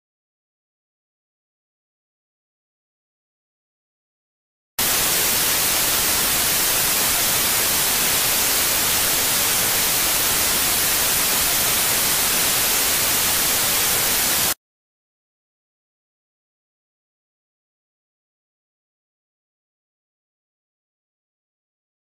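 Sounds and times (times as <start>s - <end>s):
tv static hiss: 4.8s - 14.6s.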